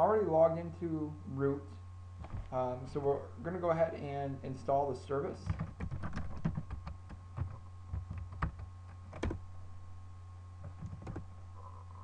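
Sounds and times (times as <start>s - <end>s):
steady low hum: 0.0s - 12.0s
computer keyboard key presses: 5.4s - 9.4s.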